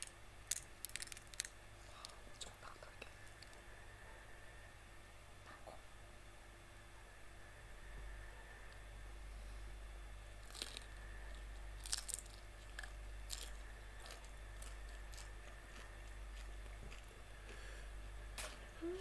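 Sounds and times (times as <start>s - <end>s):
shrimp shell crunching: 0.0s - 1.6s, 10.4s - 17.1s.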